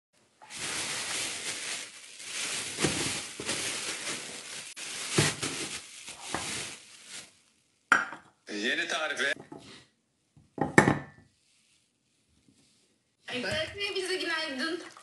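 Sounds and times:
plastic bag crinkling: 0.4 - 7.6.

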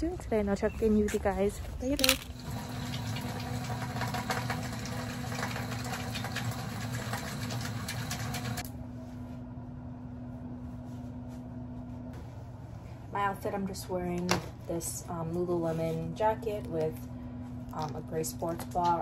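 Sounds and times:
appliance motor hum: 2.2 - 9.3.

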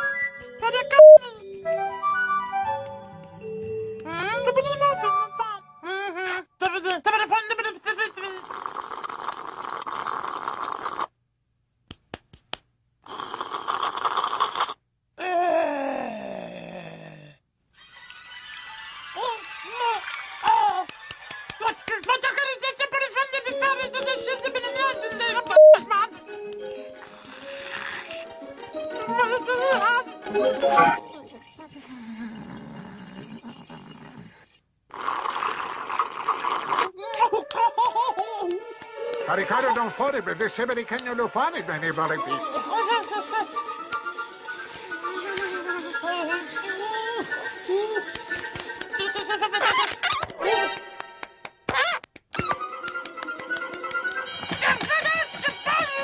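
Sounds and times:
slurping through a straw: 8.3 - 11.2, 13.1 - 14.8, 26.9 - 28.4, 31.0 - 37.0, 42.2 - 48.8
person exclaiming: 15.2 - 17.2, 37.0 - 37.6.

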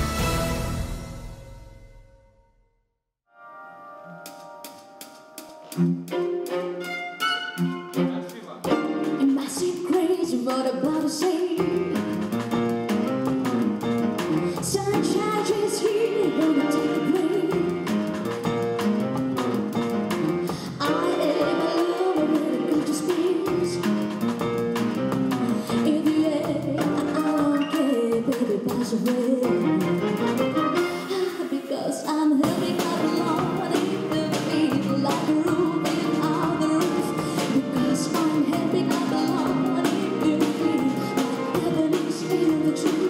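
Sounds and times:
string ensemble playing: 0.0 - 1.4, 3.9 - 9.9
woman singing into microphone: 9.2 - 11.8, 14.6 - 17.6, 20.7 - 23.8, 25.8 - 29.8, 31.1 - 43.0.

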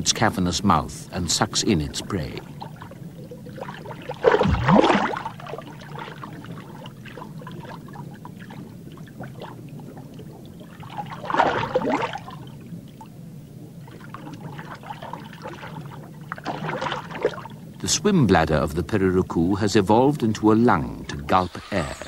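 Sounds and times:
low underwater hum: 0.0 - 22.0
fish gulping water: 1.4 - 17.8.

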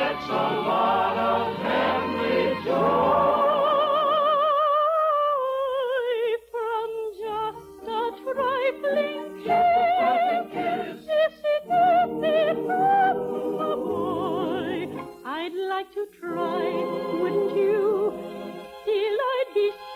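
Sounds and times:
orchestra chords: 0.0 - 3.8
soprano singing with vibrato: 0.0 - 19.9.

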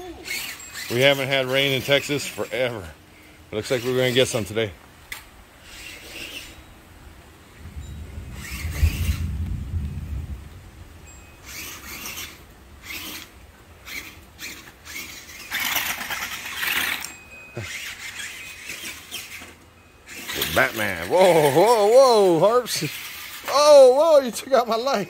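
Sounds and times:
toy truck electric motor and tyres: 0.0 - 6.8, 8.4 - 9.3, 11.4 - 25.0
low rumble: 7.5 - 11.1.

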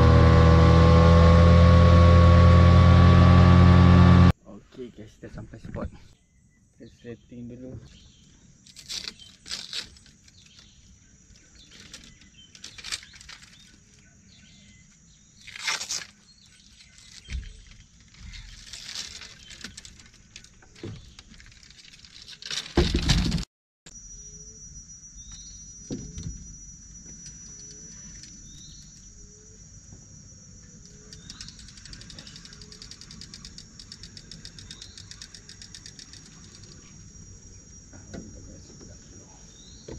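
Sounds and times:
fishing gear knocks and clicks: 16.9 - 23.4, 30.9 - 36.8
high insect drone: 23.9 - 39.9
bird calling: 30.6 - 39.9.

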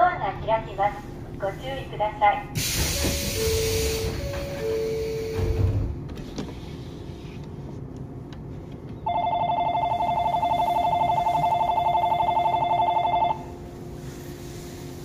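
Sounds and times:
electronic two-tone warning bell: 9.1 - 13.5.

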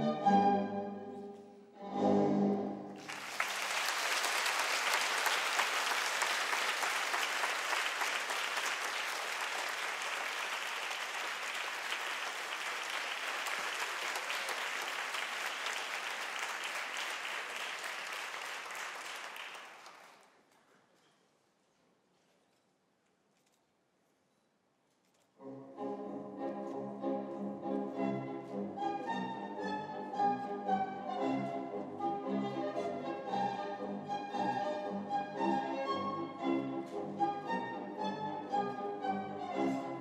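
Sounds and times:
orchestral ballet music: 0.0 - 3.2, 25.4 - 40.0
audience applause: 3.0 - 20.4.

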